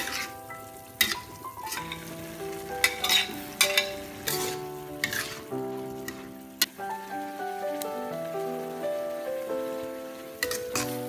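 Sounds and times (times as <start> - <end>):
spatula scraping a wok: 0.0 - 0.4, 1.0 - 2.1, 2.8 - 6.2, 10.4 - 11.0
vegetables sizzling in a wok: 0.0 - 11.0.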